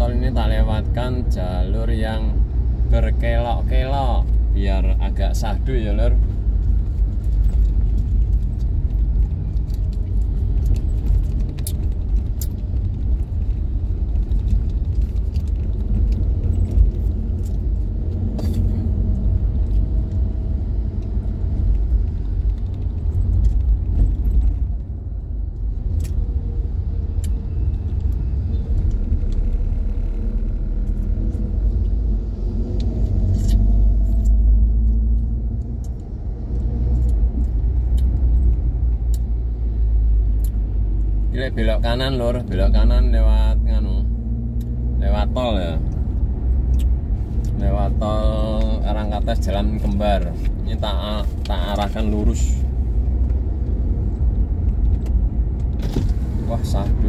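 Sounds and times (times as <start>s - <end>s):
car engine and tyres rumbling: 0.0s - 57.0s
small clicks and rattles: 6.8s - 18.4s.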